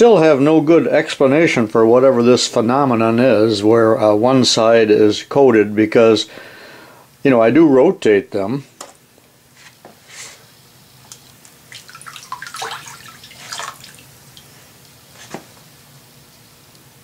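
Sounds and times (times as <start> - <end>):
water dripping and trickling: 11.7 - 14.5.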